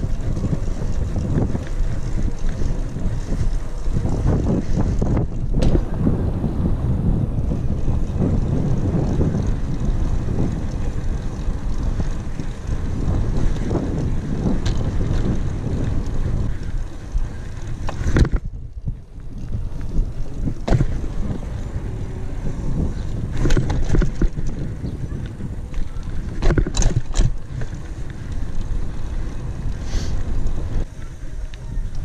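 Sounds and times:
tyres rumbling on asphalt: 0.0 - 32.0
wind buffeting microphone: 0.0 - 32.0
bike knocks: 5.0 - 6.2, 13.3 - 15.4, 17.8 - 18.5, 20.4 - 21.4, 23.3 - 24.6, 25.8 - 27.8.

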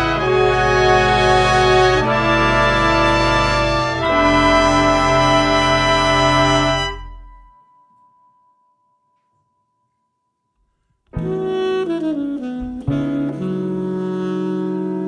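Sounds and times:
brass chord: 0.0 - 7.6, 11.2 - 15.0
saxophones playing falling lines: 0.0 - 7.6, 11.2 - 15.0
faint high note: 4.0 - 10.0.

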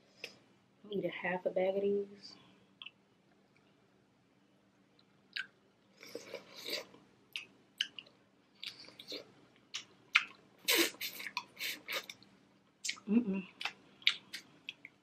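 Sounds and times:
wet sucking and chewing: 5.0 - 12.2.

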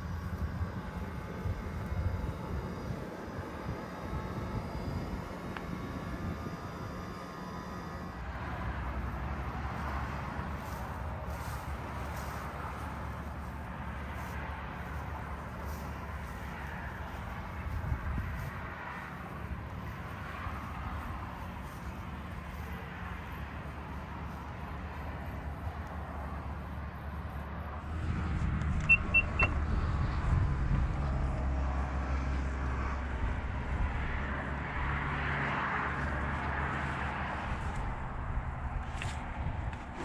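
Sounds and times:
steady low rumble: 0.0 - 40.0
short high beeps: 28.8 - 29.6.

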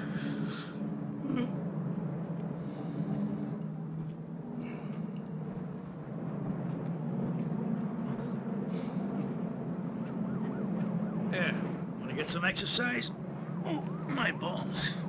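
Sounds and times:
distant city traffic rumble: 0.0 - 15.0.

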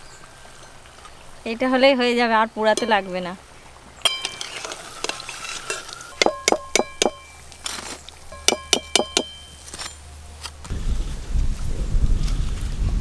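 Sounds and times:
metal skimmer clinking on pan: 2.7 - 3.2, 4.0 - 7.5, 8.3 - 10.0
food sizzling in hot oil: 4.0 - 7.5.

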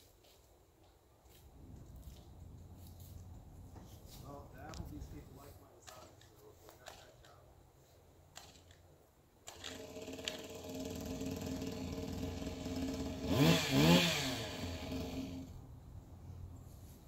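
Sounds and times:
two-stroke scooter engine revving: 9.5 - 15.6.

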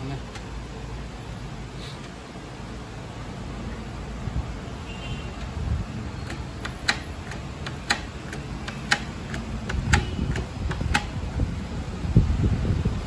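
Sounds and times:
printer mechanism clicking: 0.2 - 0.6, 5.4 - 11.2.

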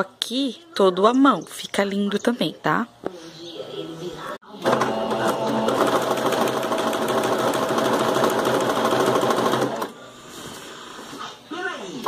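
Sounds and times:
sewing machine stitching: 4.6 - 10.0.

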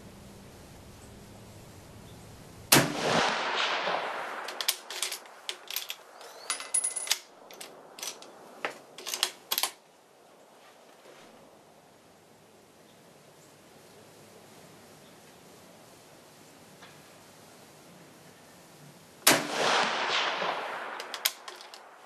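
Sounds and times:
rifle shot: 2.7 - 5.6, 19.2 - 22.0
rifle bolt clacking: 4.5 - 8.3, 9.0 - 9.8, 20.9 - 21.9.

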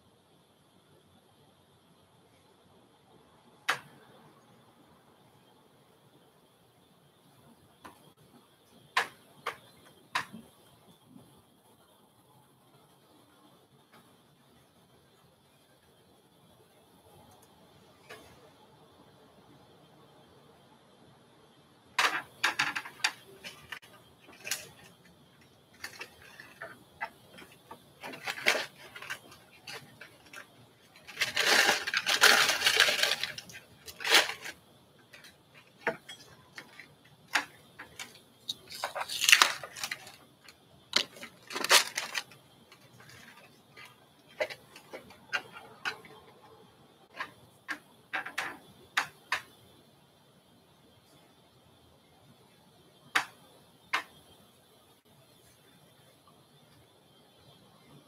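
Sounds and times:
faint high whine: 0.0 - 58.0
small hard objects clattering: 22.0 - 46.2, 47.1 - 49.6
rustling: 22.0 - 46.3.

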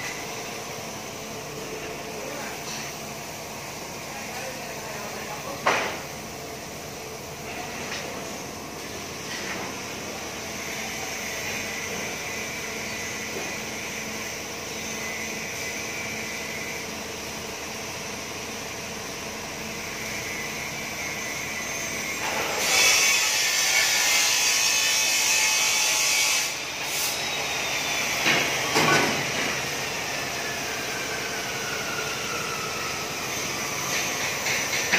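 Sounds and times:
workshop machinery noise: 0.0 - 34.9.

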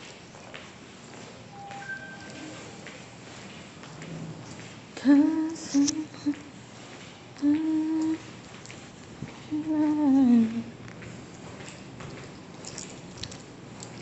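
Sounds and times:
person humming: 5.0 - 6.5, 7.4 - 8.2, 9.5 - 10.7.

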